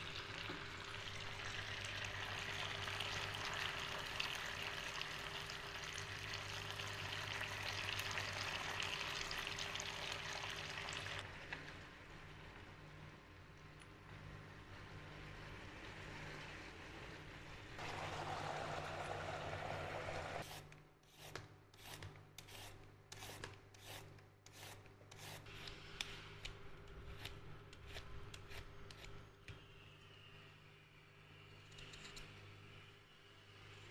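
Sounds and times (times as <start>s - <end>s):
peeler scraping a carrot: 20.4s - 29.2s.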